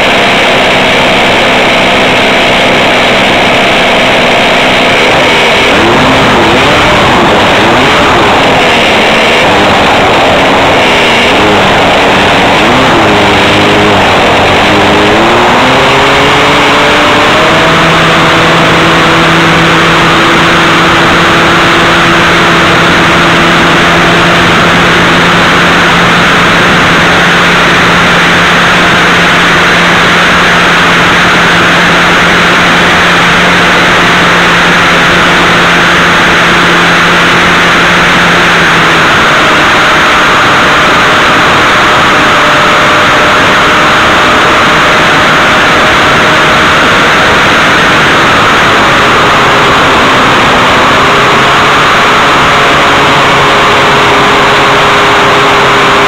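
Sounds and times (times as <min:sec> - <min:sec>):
heavy wind rush: 0:00.0 - 0:56.0
ultralight aircraft engine: 0:00.0 - 0:56.0.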